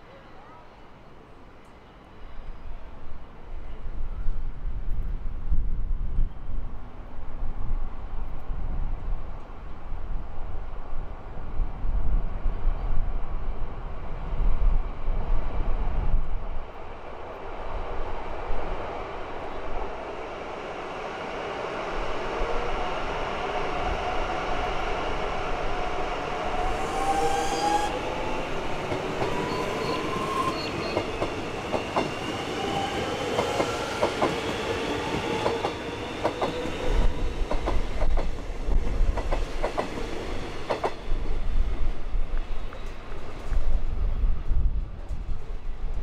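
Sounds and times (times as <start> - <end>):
electric train whine: 14.2 - 46.0.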